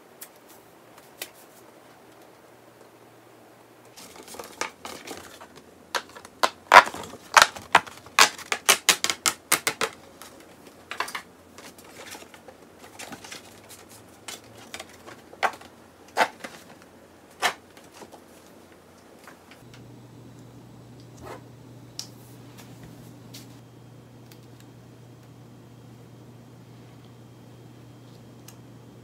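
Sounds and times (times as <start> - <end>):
paper rustling: 3.9 - 19.6.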